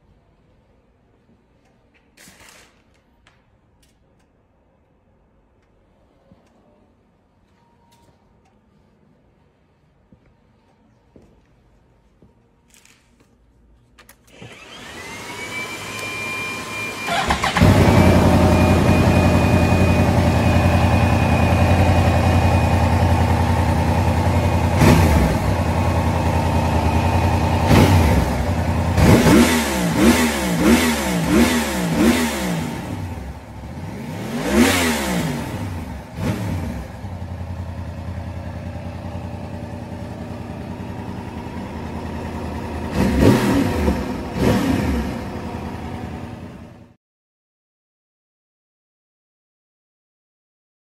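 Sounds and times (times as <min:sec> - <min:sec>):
motorcycle engine starting: 0:14.2 - 0:47.0
motorcycle engine idling and revving: 0:14.4 - 0:47.0.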